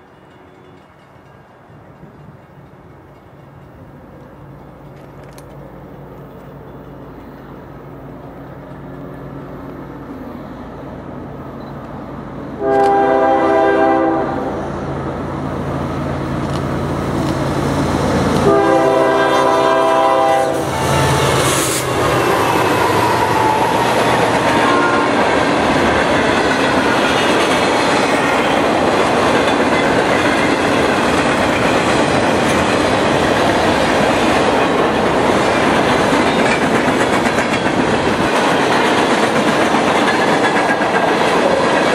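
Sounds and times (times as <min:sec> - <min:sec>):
train wheels clattering on rail: 0:00.0 - 0:09.8, 0:15.6 - 0:41.9
diesel locomotives passing: 0:00.0 - 0:41.9
train horn blasts: 0:12.6 - 0:14.7, 0:18.4 - 0:21.9, 0:22.8 - 0:25.3.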